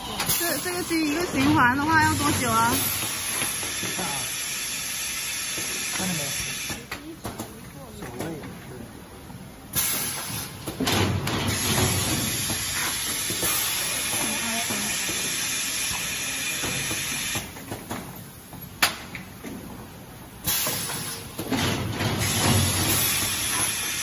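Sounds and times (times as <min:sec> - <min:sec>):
compressed air hissing: 0:02.0 - 0:06.8, 0:09.7 - 0:10.6, 0:11.5 - 0:17.6, 0:20.4 - 0:21.3, 0:22.2 - 0:24.0.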